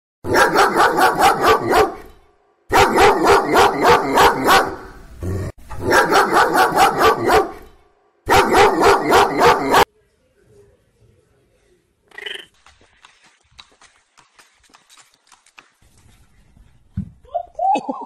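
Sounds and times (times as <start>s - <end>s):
dog barking: 0.3s - 5.0s, 5.8s - 7.7s, 8.3s - 9.9s.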